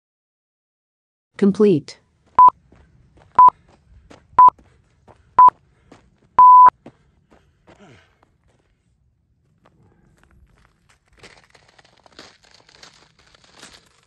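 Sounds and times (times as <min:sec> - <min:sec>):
long timer beep: 0:06.4 - 0:06.7
timer beeps: 0:06.4 - 0:06.7.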